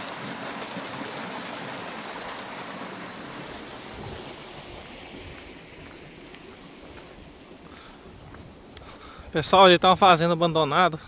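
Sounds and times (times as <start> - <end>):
forest creek running: 0.0 - 11.0.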